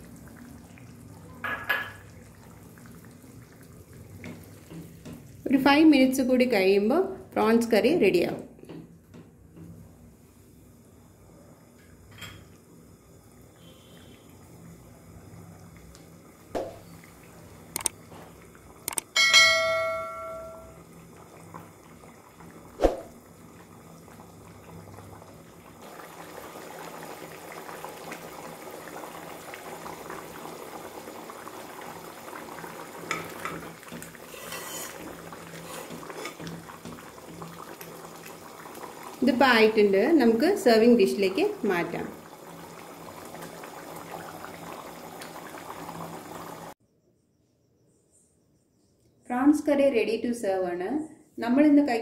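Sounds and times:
curry bubbling in pan: 0.0 - 5.8, 13.2 - 18.9, 20.7 - 46.8
sharp clicks: 17.8 - 18.0, 18.9 - 19.1
loud metallic ring: 19.2 - 20.7
spoon stirring: 34.2 - 36.4.

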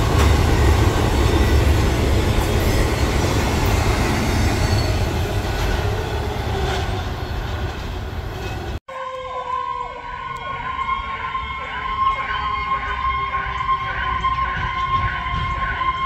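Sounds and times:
freight train cars rolling past: 0.0 - 9.9
emergency vehicle siren: 8.9 - 16.0.

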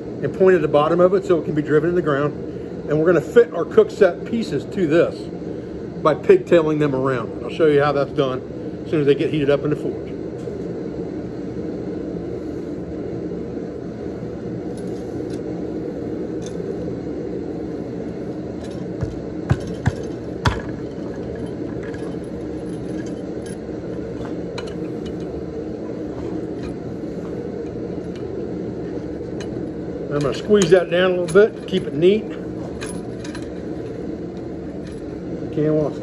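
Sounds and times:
steel clinking and knocking: 18.6 - 23.6.

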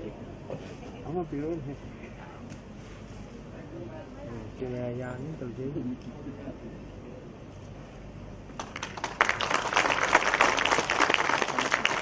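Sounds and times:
audience applauding: 8.6 - 12.0.

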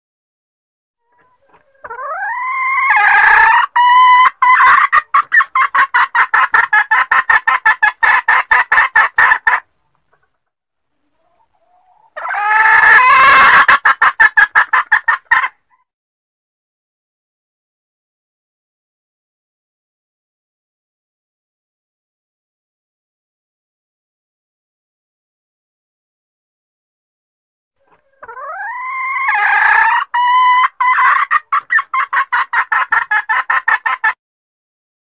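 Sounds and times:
hen calling with fast clucks: 1.1 - 10.4, 11.0 - 15.8, 27.8 - 34.2.

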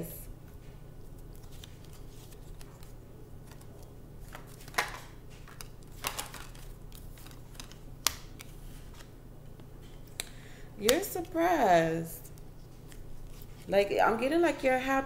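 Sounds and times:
cards being shuffled: 0.5 - 10.3, 12.3 - 13.7.

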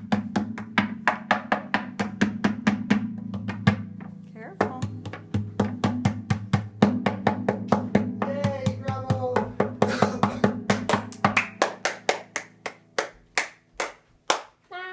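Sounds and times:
hand beating on guitar body: 0.0 - 4.0, 4.6 - 11.9.

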